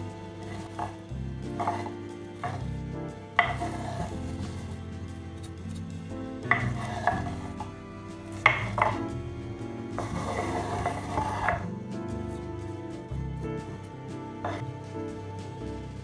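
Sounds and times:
soft background music: 0.0 - 16.0
board knocking on ceramic bowl: 0.5 - 2.8, 3.4 - 4.8, 6.4 - 9.3, 10.0 - 11.7, 14.4 - 14.6
knife sweeping on cutting board: 3.4 - 4.8, 6.5 - 7.6, 10.0 - 11.7.

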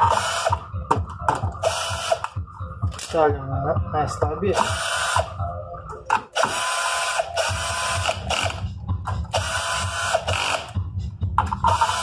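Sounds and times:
drill clutch ratcheting: 0.0 - 0.6, 1.5 - 2.3, 4.5 - 5.3, 6.1 - 10.8, 11.4 - 12.0
cordless drill driving screws: 4.6 - 5.3, 6.4 - 8.6.

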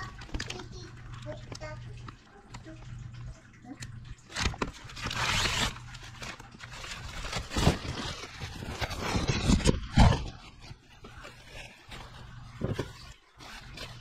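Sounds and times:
plastic and paper rustling: 0.0 - 14.0.

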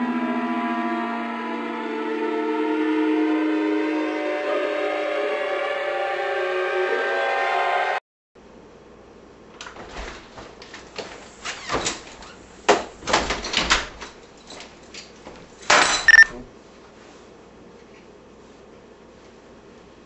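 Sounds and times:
door opening and shutting: 9.6 - 14.2, 15.7 - 16.4
keys clattering on counter: 14.0 - 16.2.

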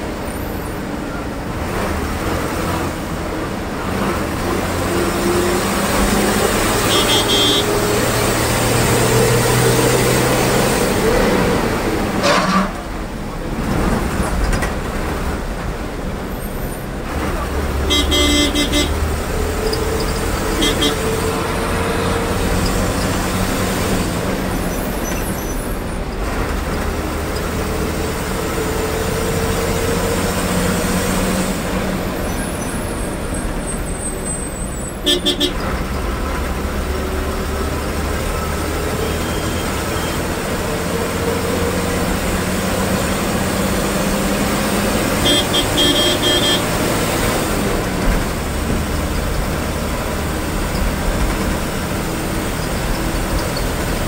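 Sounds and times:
diesel bus engine accelerating: 0.0 - 54.0
road rumble: 0.0 - 54.0
short horn toots: 6.8 - 7.8, 12.2 - 12.8, 17.8 - 19.0, 20.5 - 21.2, 35.0 - 35.7, 45.2 - 46.8.

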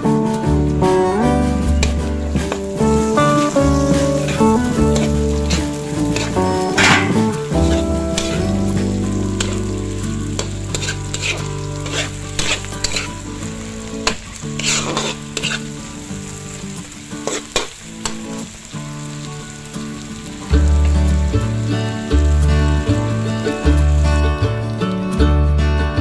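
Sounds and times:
vegetables sizzling in oil: 1.5 - 24.4
metal spatula scraping pan: 2.9 - 8.7, 9.4 - 9.7, 10.3 - 13.3, 14.0 - 15.8, 17.2 - 17.7.

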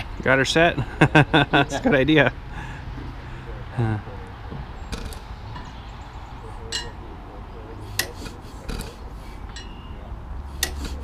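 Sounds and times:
metallic clinks and knocks: 9.5 - 9.8.

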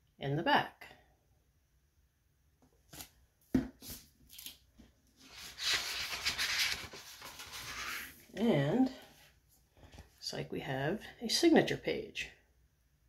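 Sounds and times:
pages rustling: 2.8 - 8.4.

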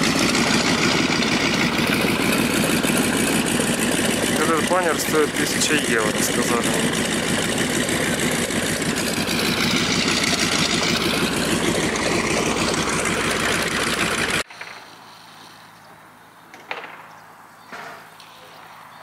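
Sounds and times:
aircraft engine passing: 0.0 - 14.4
faint outdoor ambience: 14.4 - 19.0.

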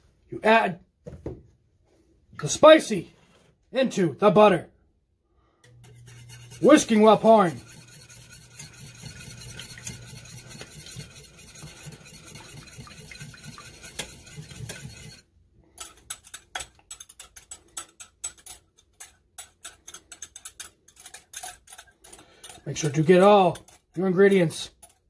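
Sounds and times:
whisk clinking against pot: 5.7 - 25.0
whisk swishing in sauce: 5.7 - 25.0.

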